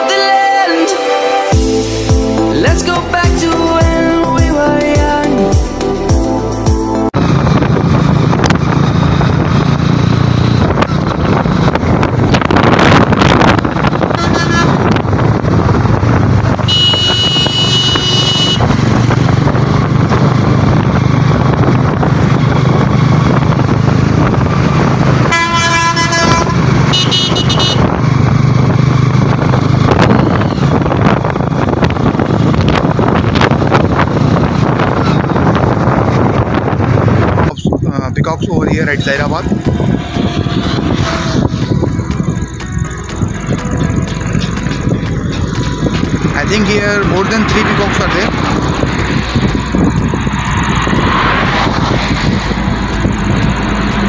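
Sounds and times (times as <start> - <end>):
wind and road noise: 1.4 - 54.0
motorcycle engine hum: 1.6 - 54.0
vehicle horn honking: 14.1 - 15.0, 16.6 - 18.8, 25.2 - 27.9, 39.9 - 41.6.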